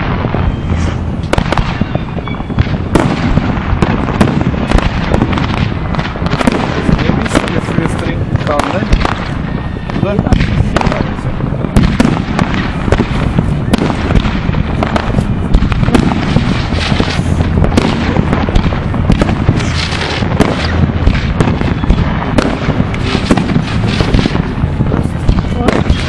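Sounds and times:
continuous loud noise: 0:00.0 - 0:26.0
fireworks bangs: 0:00.0 - 0:26.0.

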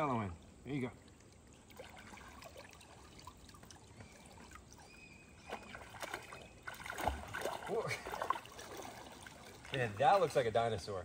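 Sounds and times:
water drips: 0:00.0 - 0:10.6
pond water lapping and splashing: 0:00.0 - 0:11.0.

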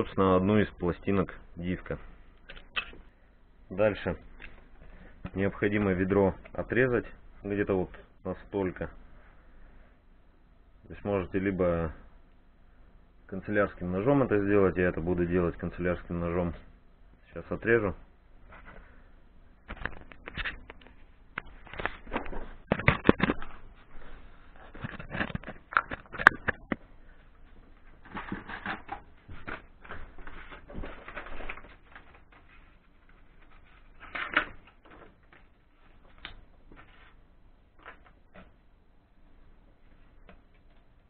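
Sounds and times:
plastic packaging rustling: 0:27.5 - 0:38.4.

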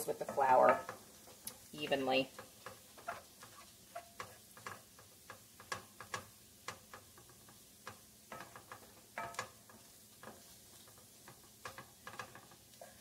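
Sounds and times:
spoon scraping a pot: 0:02.3 - 0:12.7.

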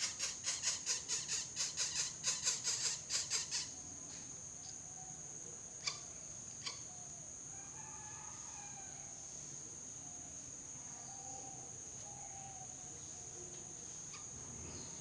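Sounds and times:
bird chick rasping calls: 0:00.0 - 0:03.7
high insect drone: 0:00.0 - 0:15.0.

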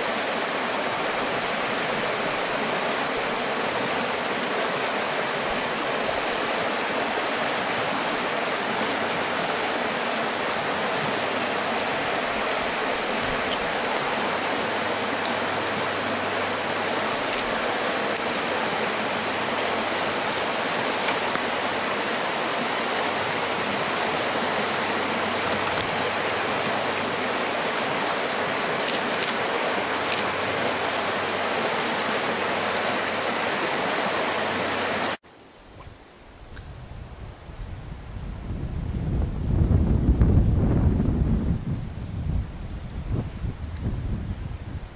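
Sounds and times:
water rushing over rocks: 0:00.0 - 0:35.2.

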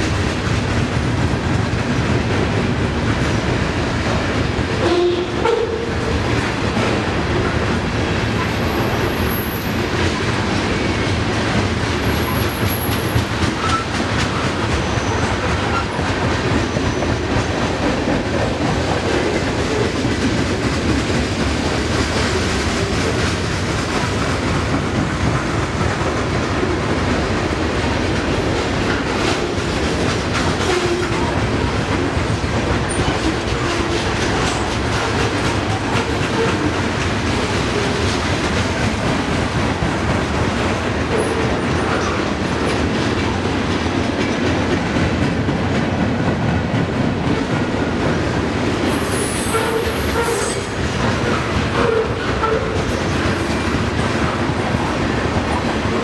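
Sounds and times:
train wheels rumbling on rails: 0:00.0 - 0:56.0
wheel squeals: 0:12.1 - 0:16.0.

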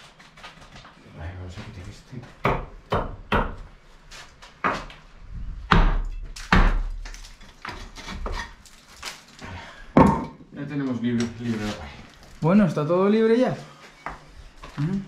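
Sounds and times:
hammer knocking wood: 0:02.4 - 0:03.6.

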